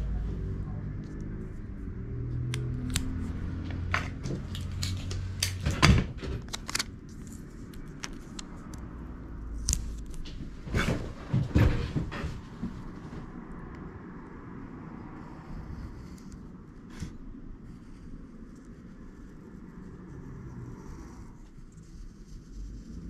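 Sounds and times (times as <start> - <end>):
adhesive tape crinkling: 6.4 - 8.8.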